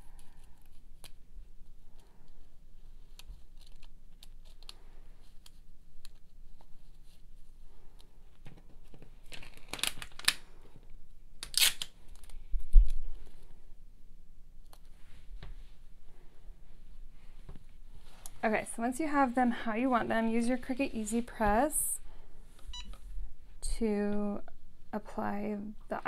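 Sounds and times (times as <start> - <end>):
vinyl sheets rustling and crinkling: 0.2 - 10.7.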